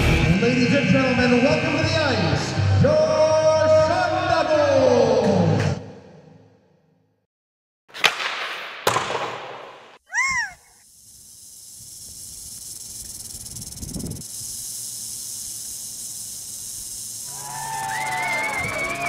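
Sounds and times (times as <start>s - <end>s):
airy wind hiss: 10.8s - 19.0s
high screech: 17.2s - 19.0s.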